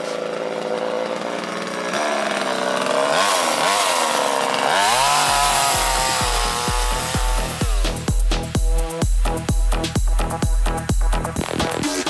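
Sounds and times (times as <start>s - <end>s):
chainsaw cutting: 0.0s - 12.0s
background music with low beat: 5.0s - 12.0s.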